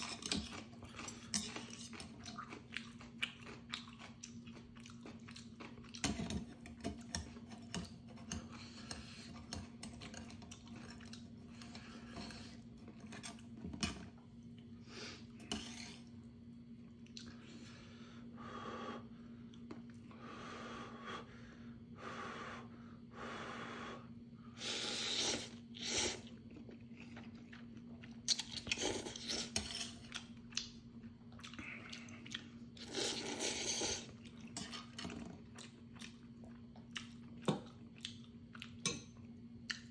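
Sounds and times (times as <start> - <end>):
chewing: 0.0 - 13.6, 25.3 - 39.9
person slurping noodles: 24.6 - 26.3, 32.8 - 34.1.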